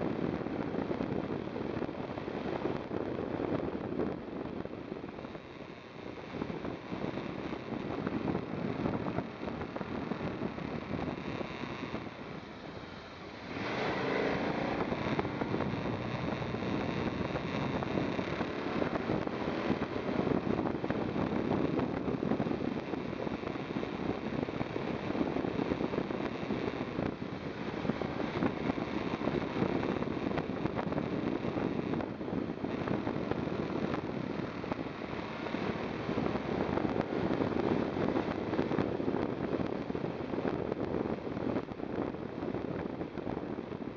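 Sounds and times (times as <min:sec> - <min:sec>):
motorcycle engine running: 0:00.0 - 0:43.9
wind rushing over microphone: 0:00.0 - 0:43.9.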